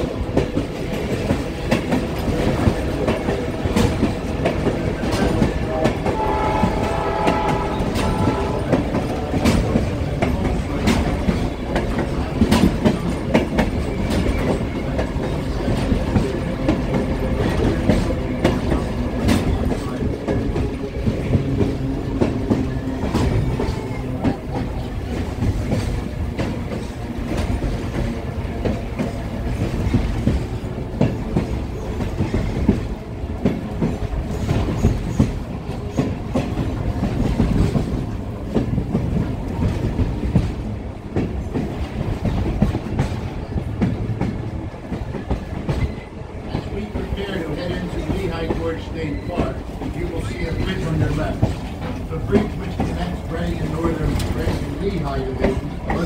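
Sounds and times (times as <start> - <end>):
train wheels clacking on rails: 0.0 - 56.0
train horn: 5.4 - 9.9.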